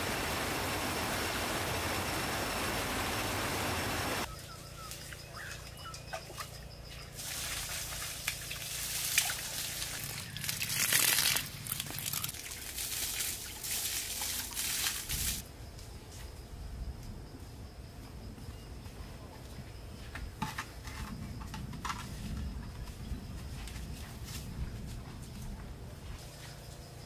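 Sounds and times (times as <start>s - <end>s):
steady rushing noise: 0.0s - 4.3s
water splashing and trickling: 4.9s - 15.4s.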